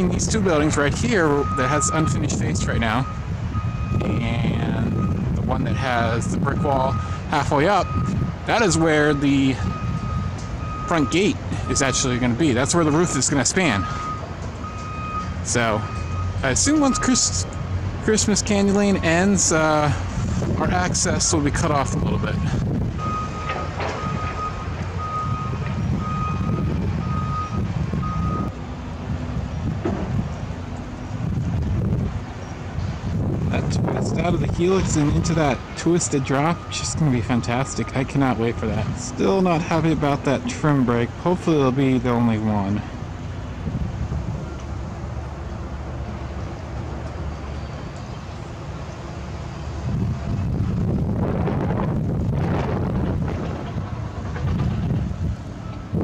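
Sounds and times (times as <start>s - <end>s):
wind buffeting microphone: 0.0s - 11.8s, 19.9s - 39.4s, 42.8s - 47.3s, 48.4s - 56.0s
low outdoor rumble: 0.0s - 56.0s
reversing alarm beeping: 0.6s - 17.8s, 18.7s - 20.0s, 21.9s - 28.6s, 34.8s - 40.8s, 55.6s - 56.0s.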